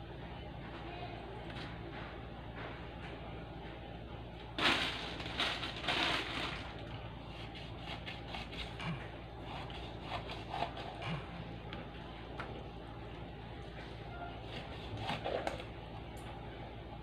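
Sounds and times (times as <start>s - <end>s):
knife scraping fish skin: 7.3s - 11.3s, 14.4s - 15.6s.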